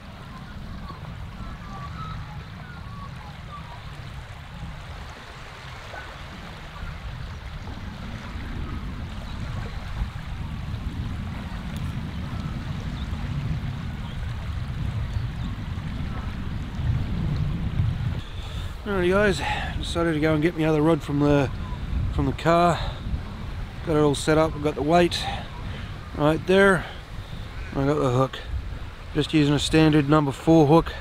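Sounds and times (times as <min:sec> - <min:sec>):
small waves lapping on shore: 0:00.0 - 0:31.0
wind buffeting microphone: 0:00.0 - 0:31.0.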